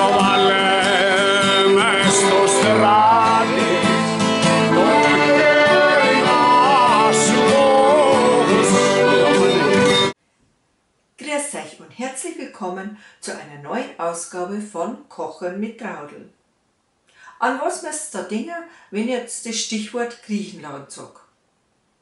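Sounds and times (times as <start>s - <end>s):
man singing: 0.0s - 10.1s
accordion sustained notes: 0.0s - 10.2s
acoustic guitar: 0.0s - 10.2s.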